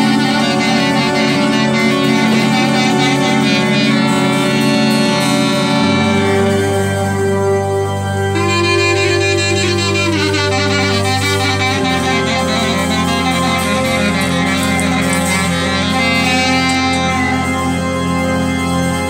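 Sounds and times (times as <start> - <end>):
clarinet melody: 0.0 - 19.0
keyboard sustained low notes: 0.0 - 19.0.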